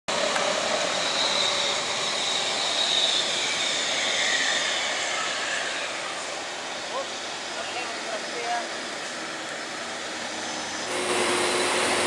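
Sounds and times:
high whine falling in pitch: 0.1 - 12.0
road noise: 0.1 - 12.0
vehicles driving past: 0.1 - 12.0.

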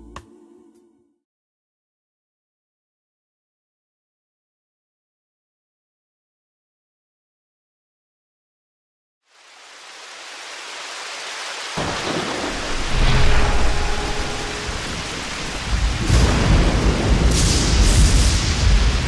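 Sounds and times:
rain hiss: 9.2 - 19.0
loud thunderclap: 11.8 - 19.0
low rolling thunder: 11.8 - 19.0.

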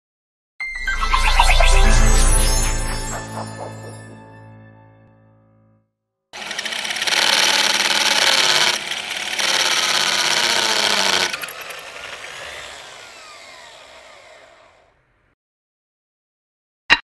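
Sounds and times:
electric drill boring into brick: 6.4 - 15.3.

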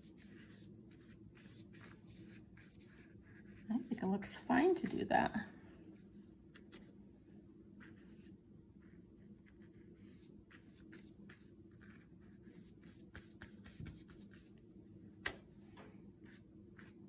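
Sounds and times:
paintbrush strokes on paper: 0.0 - 5.1, 7.8 - 14.6, 16.2 - 17.0.

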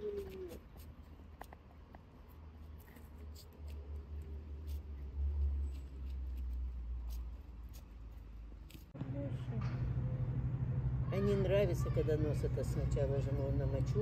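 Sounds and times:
low rumble: 8.9 - 14.0.

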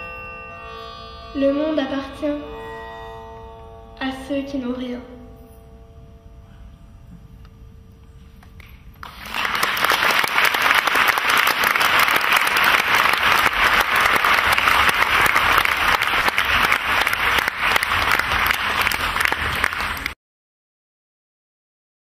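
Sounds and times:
audience applauding: 9.0 - 20.2.

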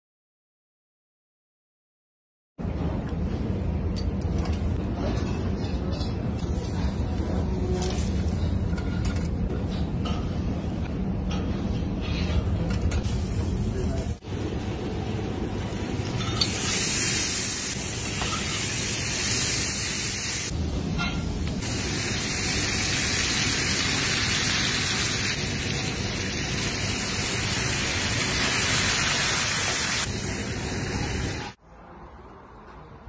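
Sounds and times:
meat sizzling in fat: 16.2 - 20.5, 21.6 - 31.6.

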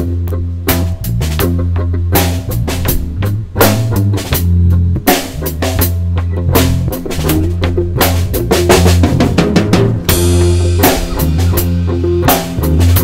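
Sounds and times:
bass guitar: 0.0 - 13.0
drum kit beat: 0.0 - 13.0
electric guitar: 0.0 - 13.0
cymbal crash: 10.1 - 13.0.

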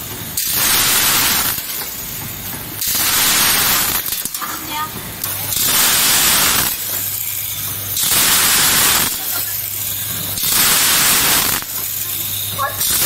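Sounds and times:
grain pouring hiss: 8.0 - 9.5, 10.4 - 11.8.

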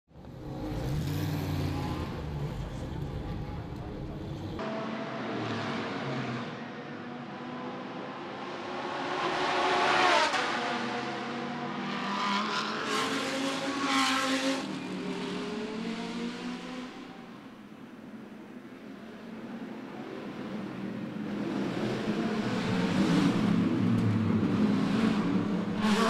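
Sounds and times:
race car engines revving: 0.2 - 17.4, 19.9 - 26.0
loud race car passing: 4.6 - 17.3, 21.2 - 26.0.

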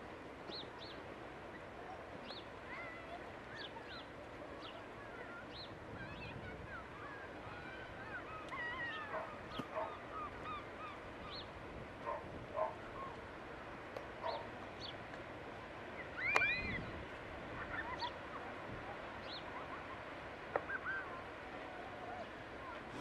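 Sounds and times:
faint steady background rush: 0.0 - 23.0
birds calling: 0.5 - 13.2, 14.2 - 15.1, 16.0 - 18.5, 19.2 - 21.4.

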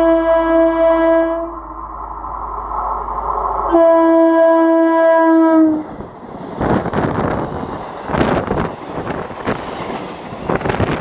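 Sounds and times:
train horn blast: 0.0 - 1.6, 3.7 - 6.0
train running noise: 0.0 - 11.0.

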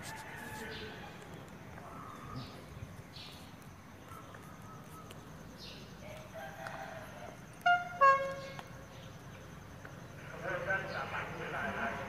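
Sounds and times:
train horn blasts: 7.6 - 8.6.

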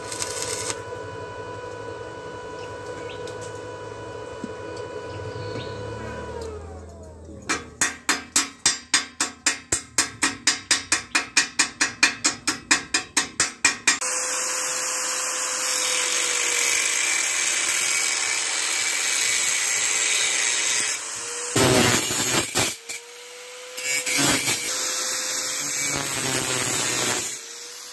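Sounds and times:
angle grinder cutting metal: 0.0 - 1.8, 13.8 - 27.9
hammer beating on steel: 7.5 - 14.0.

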